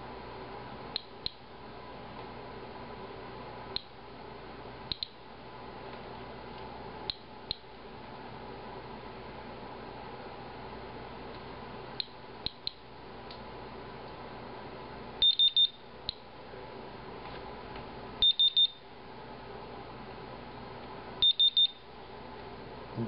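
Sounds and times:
geiger counter high beeps: 18.2 - 18.8, 21.2 - 21.8.

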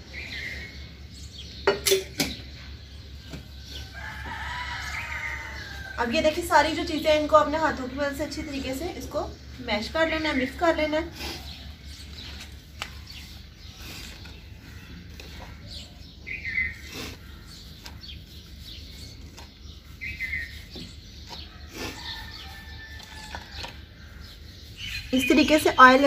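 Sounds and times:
bird chirping: 0.0 - 26.0.

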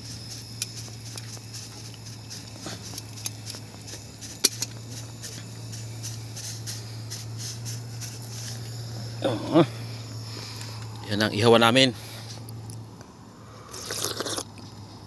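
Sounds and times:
fish crackling on a grill: 0.0 - 11.4
steady low hum: 0.0 - 15.0.

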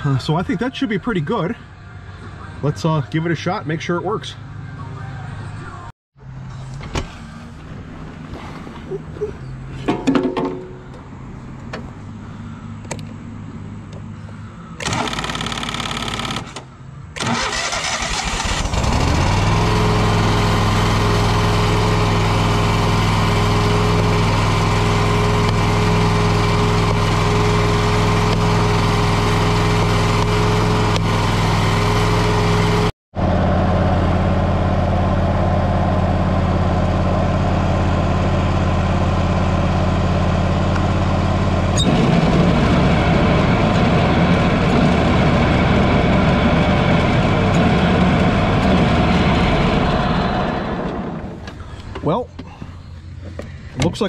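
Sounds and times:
mower engine running: 14.8 - 16.6, 17.2 - 51.8
starter turning over engine: 14.8 - 31.5.

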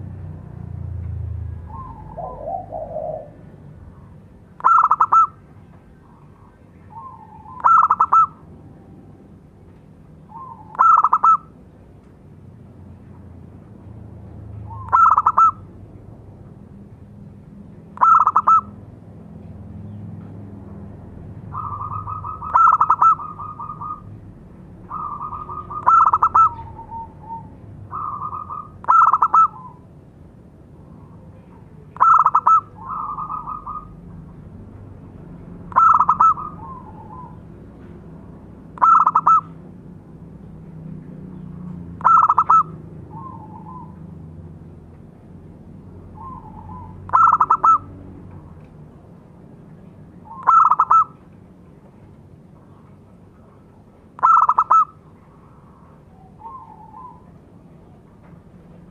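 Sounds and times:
dove cooing: 1.7 - 5.4, 6.9 - 8.5, 10.3 - 11.6, 14.6 - 15.7, 18.0 - 18.8, 21.5 - 24.1, 24.8 - 29.9, 30.9 - 34.1, 35.7 - 37.5, 38.8 - 39.5, 42.0 - 44.2, 46.2 - 47.9, 50.3 - 51.2, 54.2 - 55.0, 56.2 - 57.4.

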